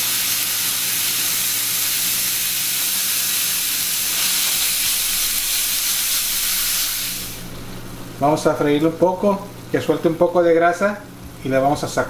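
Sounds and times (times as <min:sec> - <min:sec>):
meat sizzling in oil: 0:00.0 - 0:07.6.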